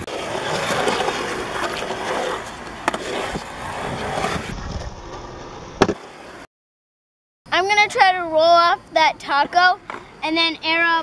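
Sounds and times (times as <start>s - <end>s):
skateboard clack: 0.0s - 6.1s, 9.4s - 10.1s
skateboard wheels rolling on concrete: 0.0s - 6.5s, 7.6s - 11.0s.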